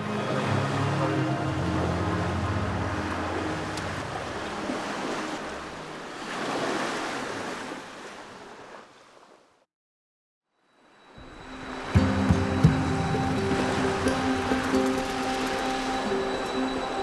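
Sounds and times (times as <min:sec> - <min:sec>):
low sustained background music: 0:00.0 - 0:06.2, 0:10.6 - 0:17.0
sea waves washing in: 0:00.0 - 0:09.5, 0:10.9 - 0:17.0.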